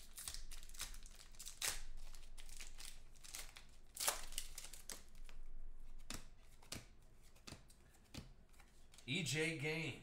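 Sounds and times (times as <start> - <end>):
foil wrapper crinkling and tearing: 0.0 - 5.3.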